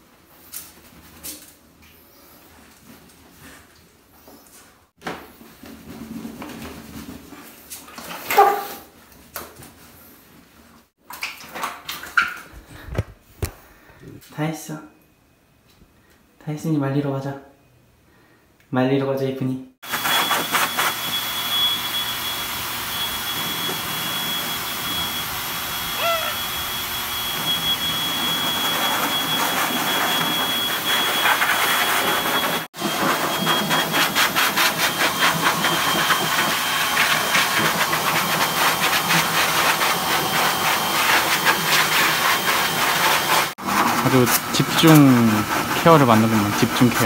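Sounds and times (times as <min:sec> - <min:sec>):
blow dryer running: 0:19.8 - 0:47.0.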